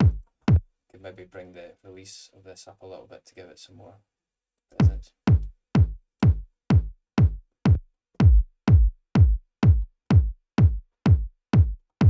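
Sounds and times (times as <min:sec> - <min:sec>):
looping kick drum: 0:00.0 - 0:00.7, 0:04.8 - 0:12.0.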